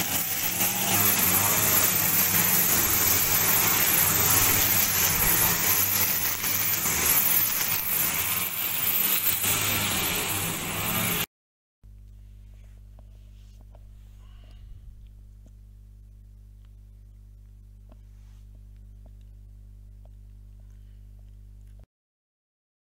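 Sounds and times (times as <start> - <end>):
grass trimmer engine running: 0.0 - 11.3.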